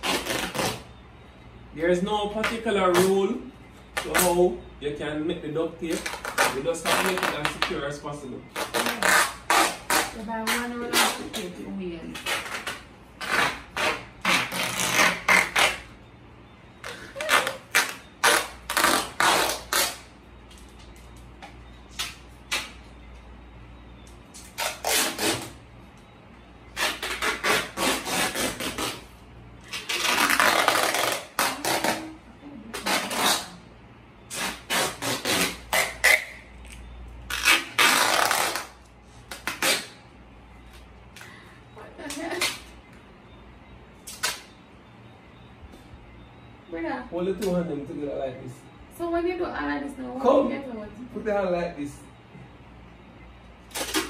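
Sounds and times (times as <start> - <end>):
duct tape pulled off roll: 12.2 - 15.9, 24.4 - 25.6, 29.6 - 32.1, 34.3 - 36.4, 37.3 - 40.0, 44.1 - 44.5, 53.7 - 54.0.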